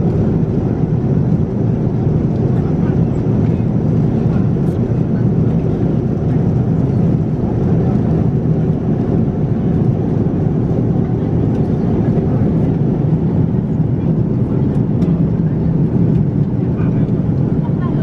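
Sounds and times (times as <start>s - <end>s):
airliner cabin drone: 0.0s - 18.0s.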